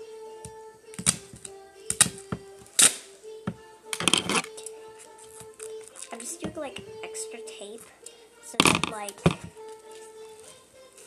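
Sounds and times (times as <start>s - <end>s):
faint music with held notes: 0.0s - 11.0s
duct tape ripping: 0.9s - 3.2s, 3.9s - 6.4s.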